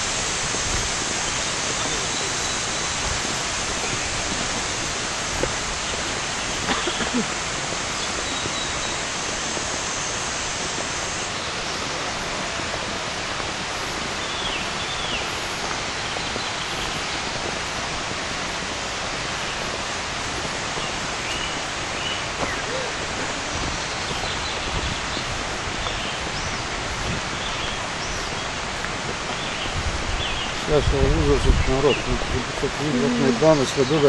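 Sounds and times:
flowing water: 0.0 - 34.0
thin high steady tone: 32.6 - 34.0.

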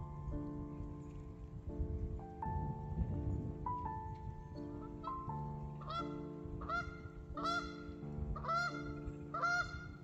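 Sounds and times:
soft background music: 0.0 - 10.0
geese honking: 4.8 - 10.0.

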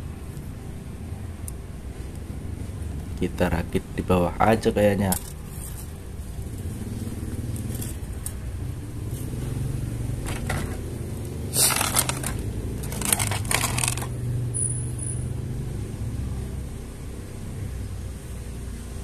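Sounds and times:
road traffic hum: 0.0 - 19.0
plastic toy track clattering: 11.6 - 14.1.

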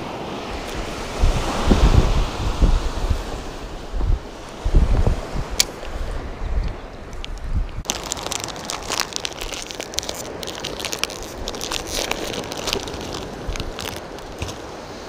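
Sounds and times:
crinkling handling noise: 6.7 - 14.8.

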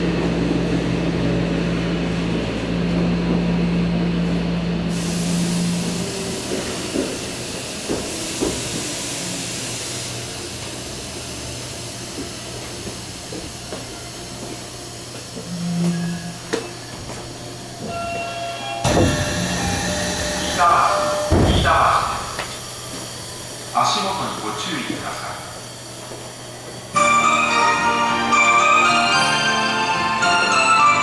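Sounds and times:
train cabin hum: 0.0 - 27.3
hiss: 4.9 - 15.2
train wheel knocks: 7.8 - 8.9, 18.8 - 19.8, 21.2 - 22.6.

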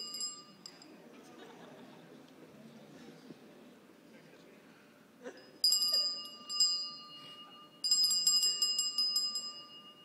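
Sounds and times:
bell ringing: 0.0 - 0.9, 5.4 - 10.0.

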